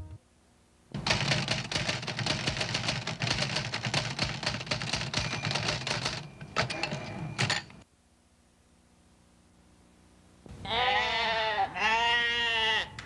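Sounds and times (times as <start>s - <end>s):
typewriter keys clacking: 1.0s - 7.8s.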